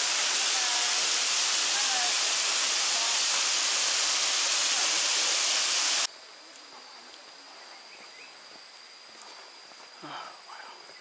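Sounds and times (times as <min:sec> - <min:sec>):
waterfall rushing: 0:00.0 - 0:06.1.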